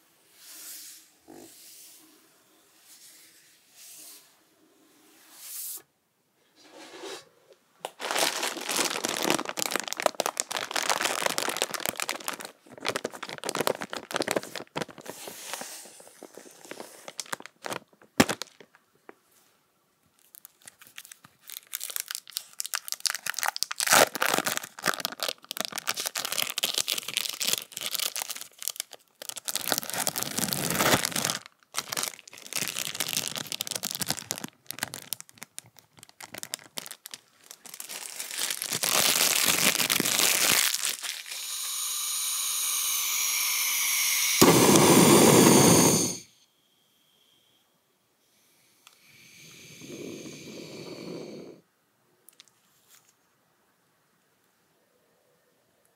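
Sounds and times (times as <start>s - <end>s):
food packaging crinkling and tearing: 7.8s - 18.7s, 20.2s - 41.6s.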